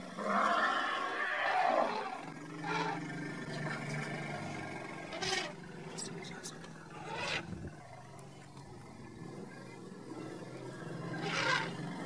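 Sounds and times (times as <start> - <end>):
low animal growl: 0.0 - 12.0
animal roaring: 0.1 - 5.8, 6.9 - 7.7, 10.1 - 12.0.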